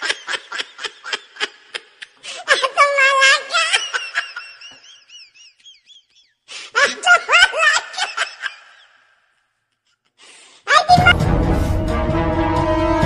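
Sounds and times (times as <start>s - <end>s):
laughter: 0.0s - 9.2s.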